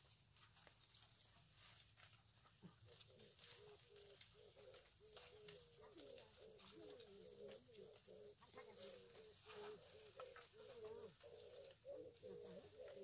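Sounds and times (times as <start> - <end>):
bird cooing: 2.7 - 13.0.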